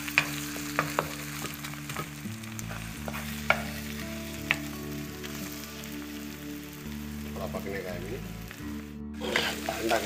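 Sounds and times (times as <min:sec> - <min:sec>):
eggs sizzling in a wok: 0:00.0 - 0:10.0
spatula tapping on pan: 0:00.2 - 0:02.1.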